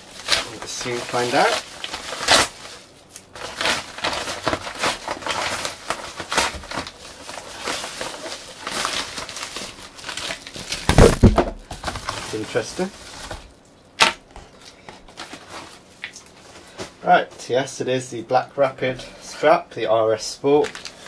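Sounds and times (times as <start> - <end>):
padded envelope tearing: 0.0 - 14.1
loud thump: 10.9 - 11.7.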